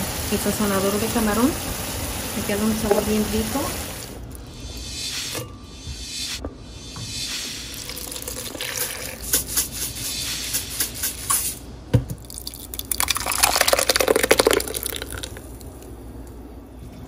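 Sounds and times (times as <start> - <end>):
liquid pouring and splashing: 7.7 - 9.8, 12.2 - 15.8.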